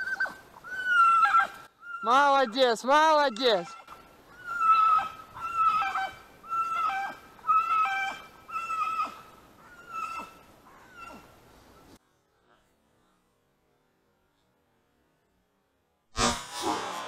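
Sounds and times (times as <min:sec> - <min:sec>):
dog yelping: 0:00.0 - 0:02.6, 0:03.3 - 0:11.3.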